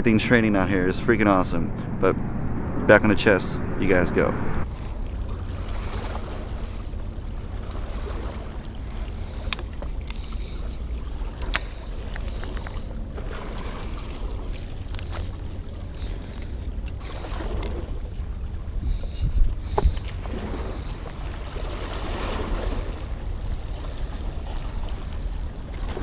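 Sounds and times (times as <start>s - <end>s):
wind buffeting microphone: 0.0s - 8.4s, 14.3s - 26.0s.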